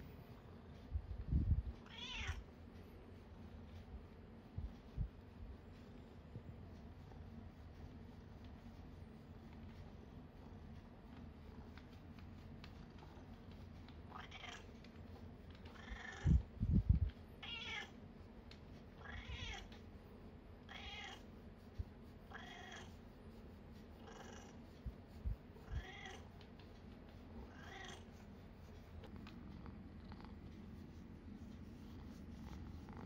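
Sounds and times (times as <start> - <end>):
roller scratching through fur: 0.0 - 33.0
cat purring: 20.8 - 33.0.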